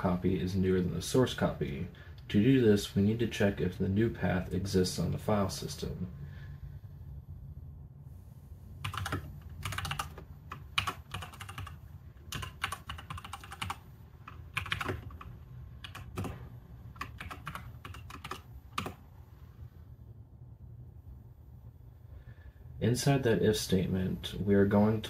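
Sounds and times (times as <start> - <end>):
low steady hum: 0.0 - 25.0
computer keyboard typing: 8.8 - 19.0.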